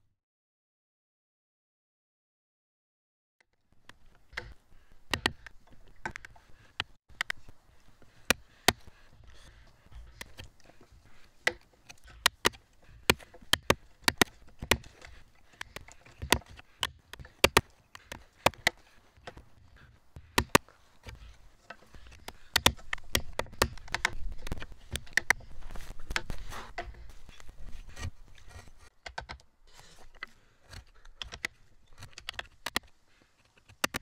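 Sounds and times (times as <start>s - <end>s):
hammer striking chisel: 11.1s - 19.5s, 20.2s - 20.6s.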